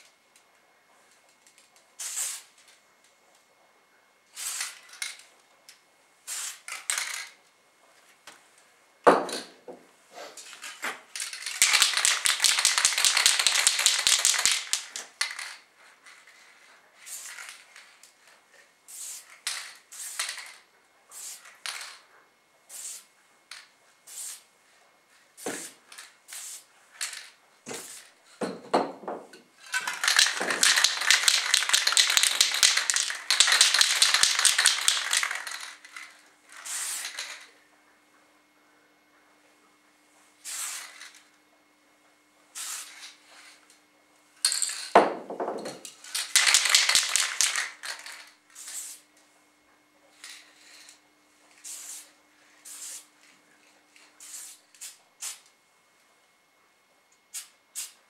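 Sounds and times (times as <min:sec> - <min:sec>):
spray paint can hissing: 0:02.0 - 0:02.5, 0:04.4 - 0:04.8, 0:06.3 - 0:07.1, 0:11.4 - 0:15.6, 0:17.1 - 0:17.6, 0:18.9 - 0:22.0, 0:22.7 - 0:23.1, 0:24.1 - 0:24.5, 0:25.4 - 0:28.1, 0:29.8 - 0:37.4, 0:40.4 - 0:41.1, 0:42.6 - 0:43.0, 0:46.3 - 0:49.0, 0:51.6 - 0:53.0, 0:54.2 - 0:55.5, 0:57.3 - 0:58.0.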